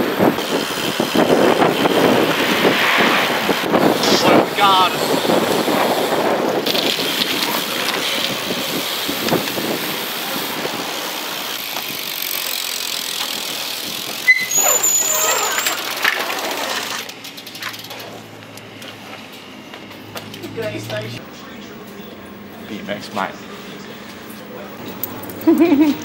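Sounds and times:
wind on microphone: 0:00.0 - 0:10.9
bike tyres rolling on concrete: 0:00.0 - 0:26.0
brief high squeal: 0:14.2 - 0:15.8.

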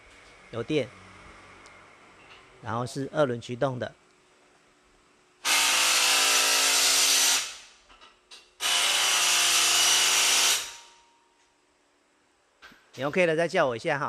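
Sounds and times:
power tool running: 0:05.4 - 0:07.7, 0:08.6 - 0:10.9.

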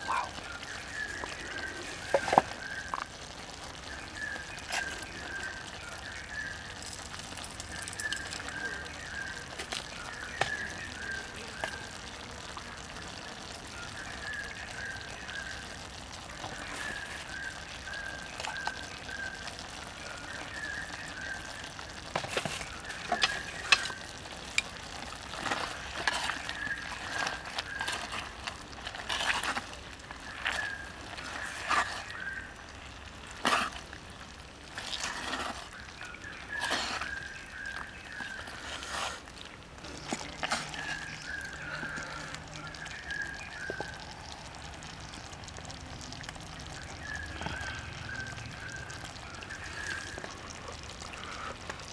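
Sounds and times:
fire ticks and crackles: 0:00.0 - 0:51.9
stew simmering: 0:00.0 - 0:51.9
chopsticks stirring stew: 0:22.1 - 0:32.4, 0:33.3 - 0:34.0, 0:34.7 - 0:42.4.

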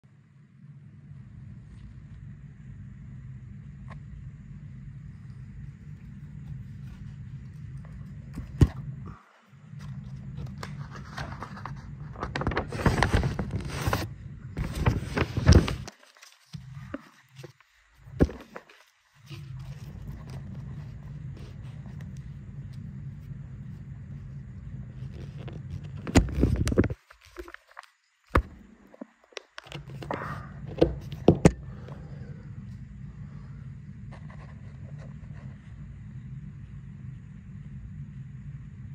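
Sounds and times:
low steady rumble: 0:00.0 - 0:15.9, 0:16.5 - 0:27.0, 0:29.8 - 0:38.9
steady low hum: 0:00.0 - 0:38.9
rustling and scraping handling noise: 0:05.0 - 0:31.5, 0:34.0 - 0:35.8.

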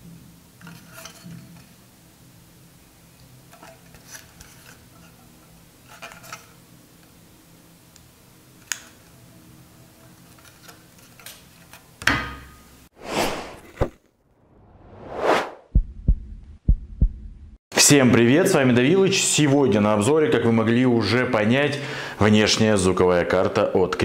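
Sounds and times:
whoosh sound effects: 0:13.0 - 0:15.7.

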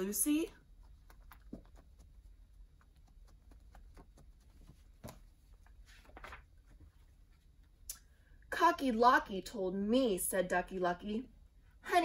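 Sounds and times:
paper book rustling: 0:00.8 - 0:07.7.

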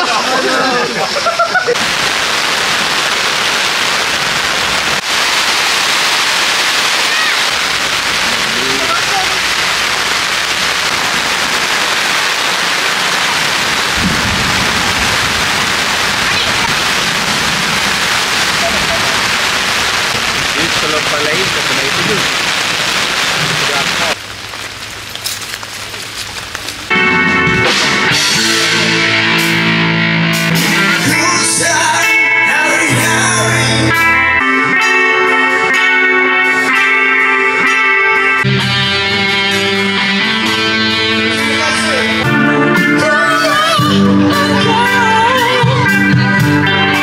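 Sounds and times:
loud rain falling: 0:00.0 - 0:34.0
low rumble: 0:07.6 - 0:24.2
guitar background music: 0:26.9 - 0:47.0.

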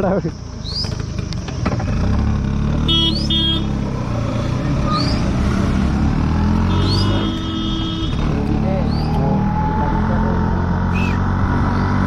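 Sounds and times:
scooter engine running: 0:00.8 - 0:04.9
horn beeps: 0:06.6 - 0:08.2.

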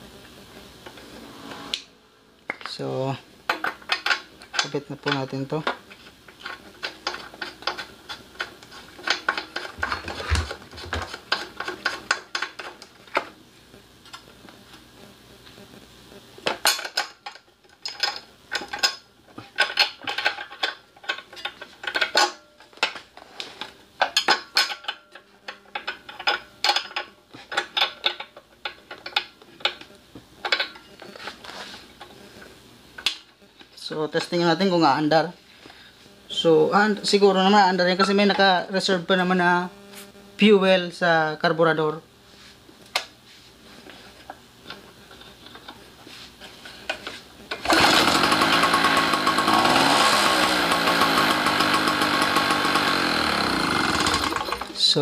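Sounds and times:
wrench working: 0:47.5 - 0:54.7.

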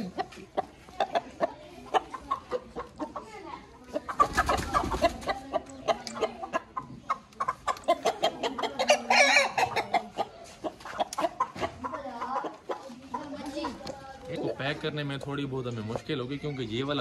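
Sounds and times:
chickens clucking and squawking: 0:00.0 - 0:17.0.

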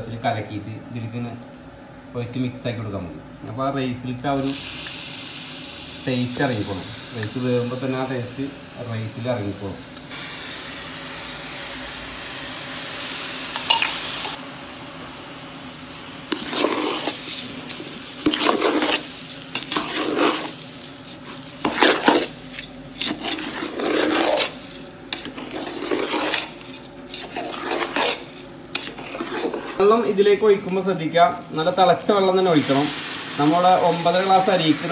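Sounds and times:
water sizzling in hot pot: 0:04.2 - 0:34.9
ladle scraping pot: 0:16.3 - 0:29.9.

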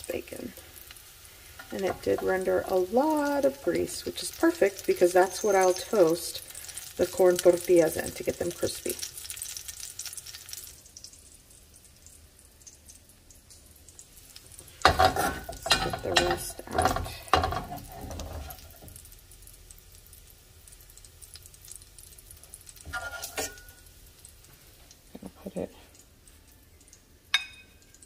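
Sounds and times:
grease sizzling faintly: 0:00.0 - 0:28.0
metal spoon scraping frying pan: 0:01.5 - 0:02.8, 0:14.8 - 0:18.9, 0:22.8 - 0:23.9.

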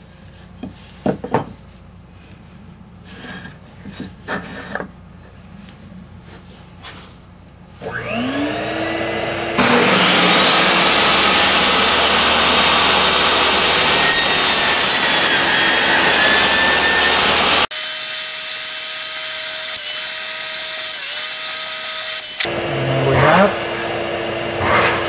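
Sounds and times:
table saw motor whine: 0:07.8 - 0:19.0, 0:19.6 - 0:25.0.

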